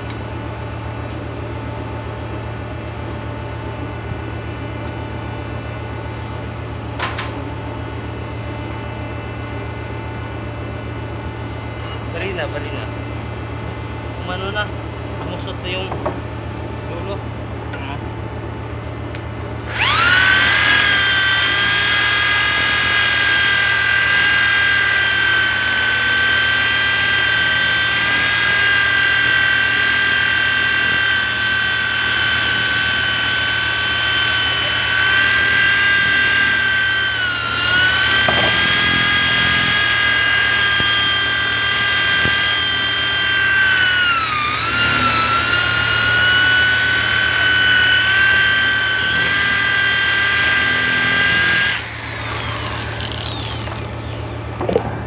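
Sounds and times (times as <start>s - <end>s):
steady low hum: 0.0s - 19.7s, 51.4s - 55.0s
power tool whining: 19.1s - 55.0s.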